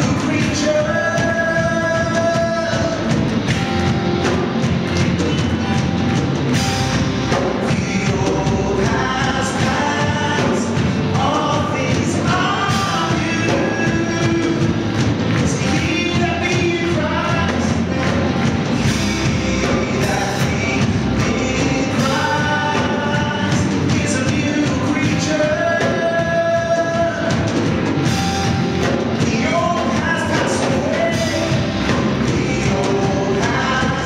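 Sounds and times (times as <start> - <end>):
electric bass guitar: 0.0 - 34.0
keyboard: 0.0 - 34.0
steady beat: 0.0 - 34.0
singers in harmony: 29.2 - 34.0.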